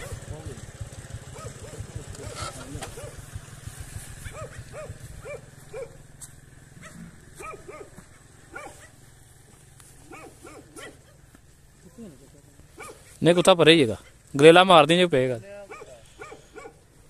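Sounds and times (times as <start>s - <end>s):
dog barking: 0.0s - 0.3s, 1.3s - 2.0s, 2.9s - 3.2s, 4.2s - 6.0s, 6.8s - 9.0s, 10.1s - 11.2s, 12.8s - 13.1s, 15.6s - 16.8s
low engine putter: 0.0s - 14.6s.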